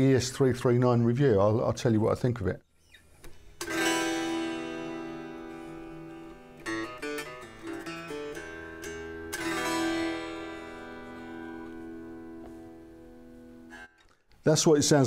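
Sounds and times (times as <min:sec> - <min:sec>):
unplugged electric guitar strumming: 0:03.3 - 0:14.0
picked guitar notes: 0:03.3 - 0:14.2.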